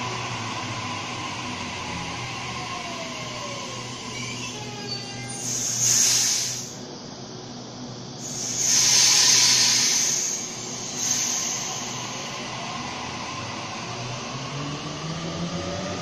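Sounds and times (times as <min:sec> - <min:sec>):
faint rising whine: 0:00.0 - 0:05.8, 0:09.6 - 0:16.0
electric train running: 0:00.0 - 0:06.7, 0:08.2 - 0:16.0
loud hissing bursts: 0:04.9 - 0:06.8, 0:08.2 - 0:13.3.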